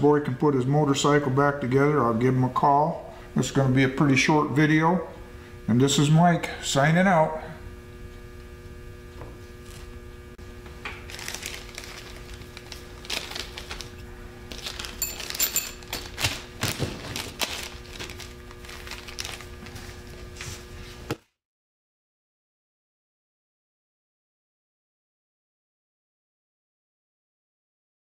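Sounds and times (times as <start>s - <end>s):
electrical hum: 0.0s - 21.2s
plastic bag crinkling: 11.0s - 20.0s.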